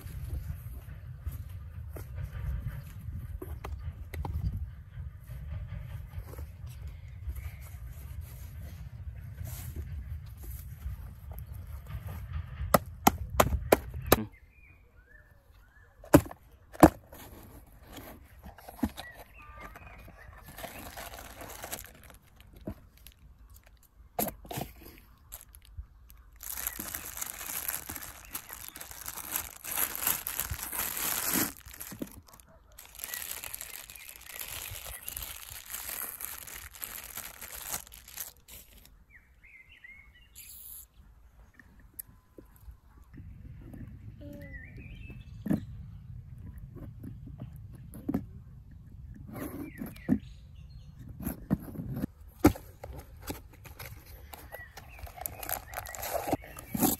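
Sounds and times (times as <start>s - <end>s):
wind rumble on microphone: 0.0s - 14.4s, 41.5s - 52.4s
plastic bag crinkling: 20.3s - 23.8s, 24.4s - 38.9s, 53.8s - 56.9s
bird chirps: 39.0s - 42.6s.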